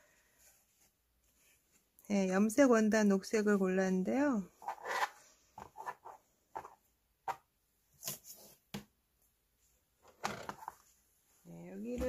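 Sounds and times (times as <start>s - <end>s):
fabric rustling: 0.0s - 2.0s.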